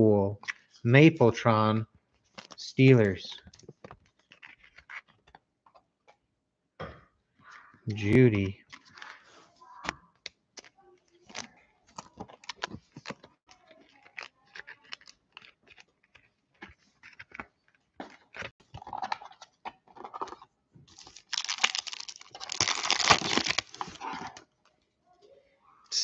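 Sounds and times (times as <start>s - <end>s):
wrapper crinkling: 2.2s - 2.6s, 3.4s - 5.4s, 10.7s - 17.7s, 20.0s - 24.4s
wrapper torn open: 11.1s - 16.1s, 20.9s - 24.3s.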